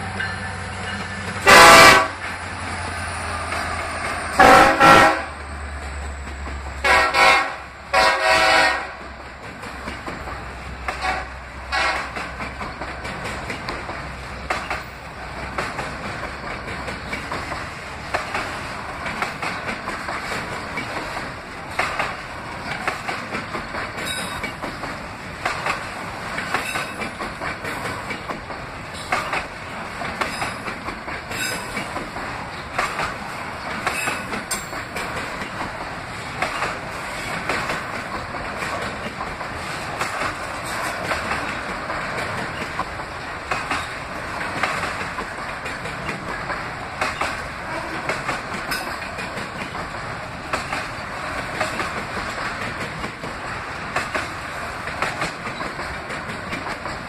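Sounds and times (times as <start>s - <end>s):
train wheels clicking on rail joints: 0.0s - 57.0s
locomotive horn blasts: 1.4s - 2.2s, 4.4s - 5.4s, 6.8s - 9.0s, 11.0s - 12.2s.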